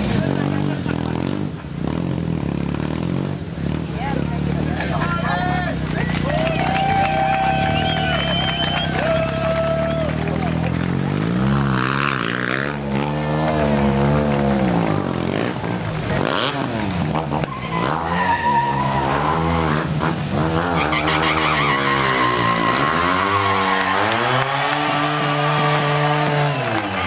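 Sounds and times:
motorcycle engine revving: 0:00.0 - 0:05.2, 0:10.6 - 0:27.0.

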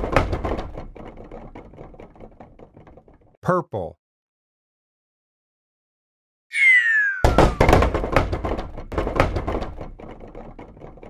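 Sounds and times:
falling whistle glide: 0:06.5 - 0:07.9.

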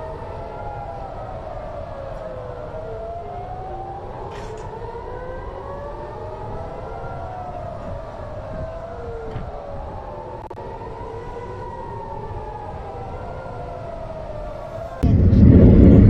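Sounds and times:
air-raid sirens wailing: 0:00.0 - 0:16.0
steady low rumble: 0:15.0 - 0:16.0.

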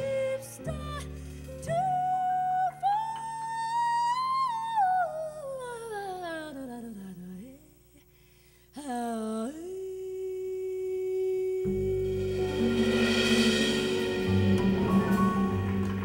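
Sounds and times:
woman singing wordlessly: 0:00.0 - 0:07.9, 0:08.8 - 0:12.6.

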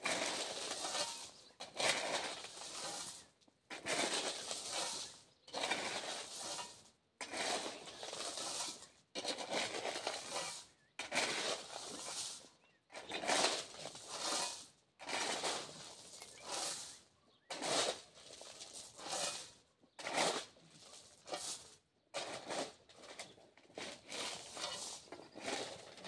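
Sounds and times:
shovel scraping gravel: 0:00.0 - 0:26.0.

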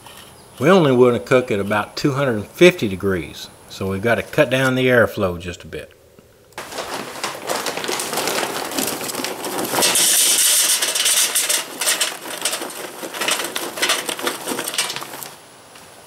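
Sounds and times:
charcoal pouring into metal can: 0:06.6 - 0:16.0.

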